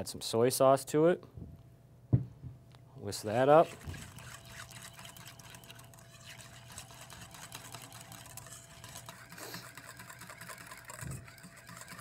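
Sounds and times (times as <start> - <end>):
wire whisk clicking in metal bowl: 3.7 - 12.0.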